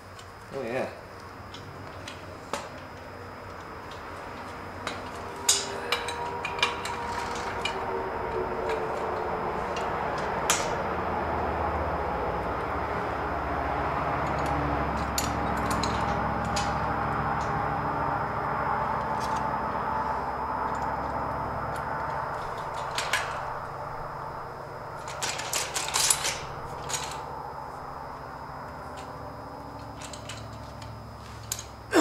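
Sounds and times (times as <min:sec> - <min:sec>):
steady rushing background noise: 0:00.0 - 0:31.9
metal clicks and clinks: 0:04.8 - 0:10.7, 0:14.2 - 0:16.8, 0:25.0 - 0:27.3, 0:29.8 - 0:31.7.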